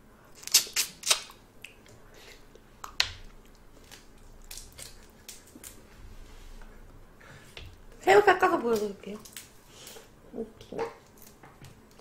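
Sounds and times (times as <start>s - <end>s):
chewing: 2.8s - 5.8s.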